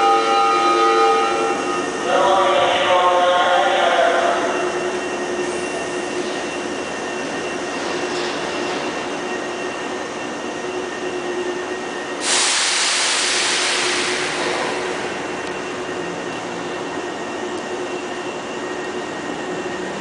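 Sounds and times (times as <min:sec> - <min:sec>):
train wheels rumbling: 0:00.0 - 0:20.0
loud hiss: 0:12.2 - 0:15.2.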